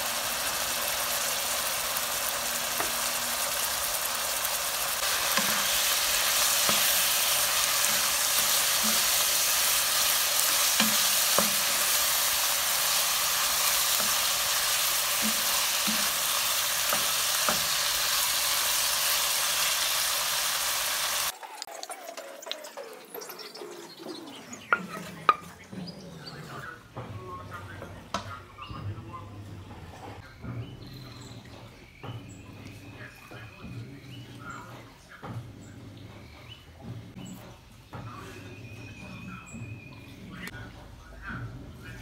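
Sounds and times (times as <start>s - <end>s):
chicken sizzling in oil: 0.0s - 23.5s
spatula tapping: 5.0s - 18.0s
spatula scraping and clacking: 5.0s - 18.6s.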